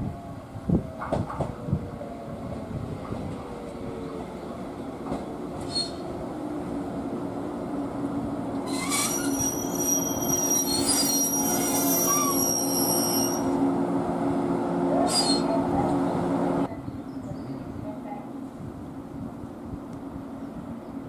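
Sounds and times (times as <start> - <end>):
high-pitched brake squeal: 8.6 - 13.5, 15.1 - 15.6.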